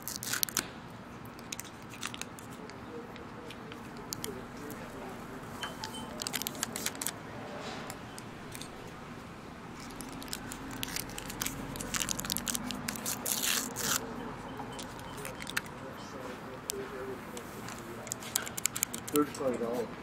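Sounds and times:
low background murmur: 0:02.1 - 0:20.0
dishes and utensils clinking: 0:05.6 - 0:06.4.

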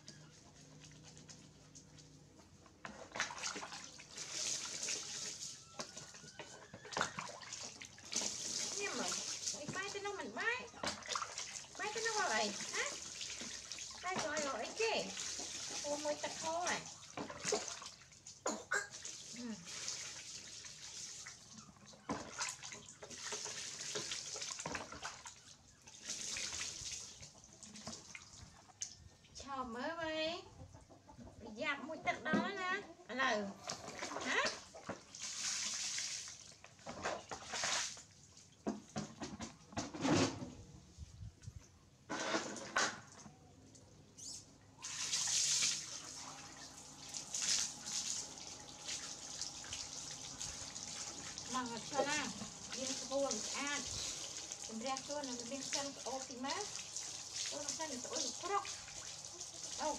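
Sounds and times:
water splashing on tiled floor: 0:02.9 - 0:06.2, 0:06.8 - 0:29.0, 0:33.7 - 0:39.0, 0:44.8 - 0:59.9.

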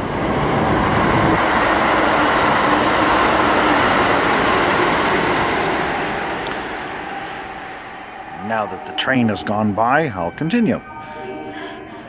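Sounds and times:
train passing: 0:00.0 - 0:12.0.

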